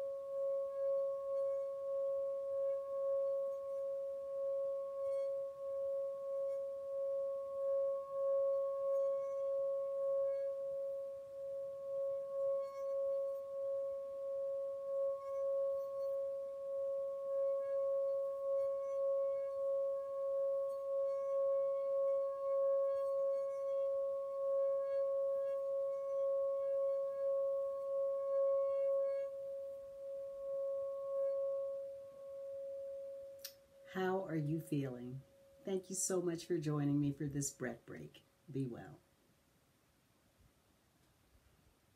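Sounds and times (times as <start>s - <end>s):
singing bowl ringing tone: 0.0s - 35.8s
mallet rubbing on metal: 0.3s - 29.4s.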